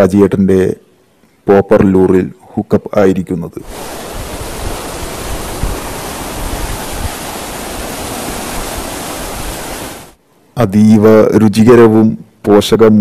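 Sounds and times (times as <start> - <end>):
sea surf breaking over rocks: 3.6 - 10.2.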